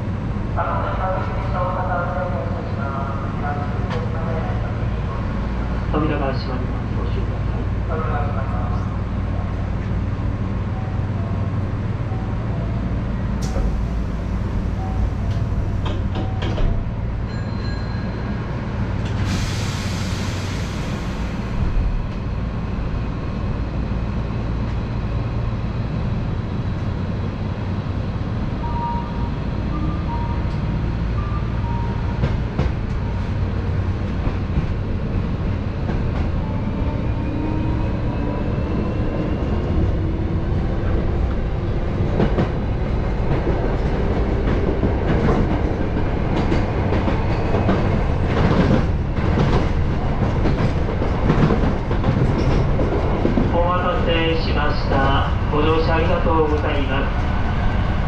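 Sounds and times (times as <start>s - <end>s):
train wheels rumbling on rail: 0.0s - 58.0s.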